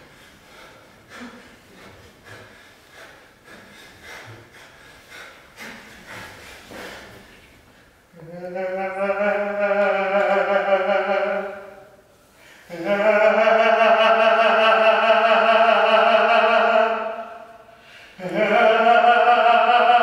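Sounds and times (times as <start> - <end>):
soft breathing: 0.0 - 8.3, 12.2 - 12.7, 17.5 - 18.2
person singing long held note: 8.2 - 12.0, 12.7 - 20.0.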